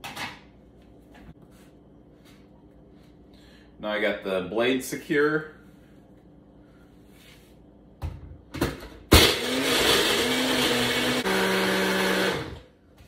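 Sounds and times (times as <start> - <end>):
blender crushing ice: 9.1 - 12.6.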